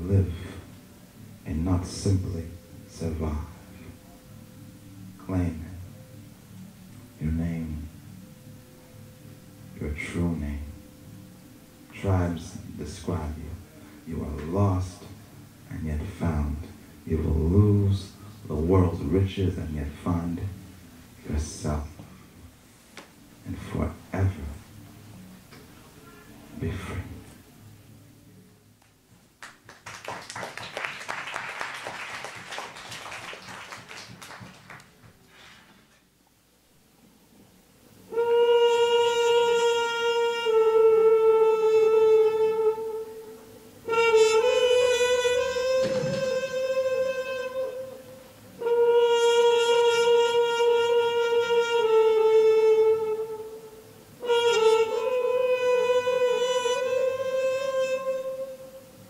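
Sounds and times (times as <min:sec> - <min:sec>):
audience applauding: 0:29.4 - 0:35.4
trumpet long held notes: 0:38.0 - 0:59.0.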